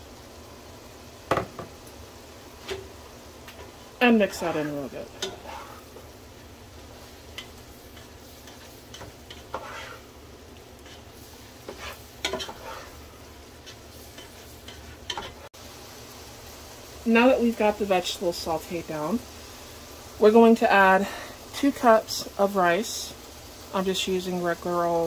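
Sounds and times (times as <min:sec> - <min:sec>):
vegetables sizzling in oil: 0:00.0 - 0:25.0
spoon scraping a pot: 0:04.4 - 0:06.0, 0:07.4 - 0:10.1, 0:10.8 - 0:13.0.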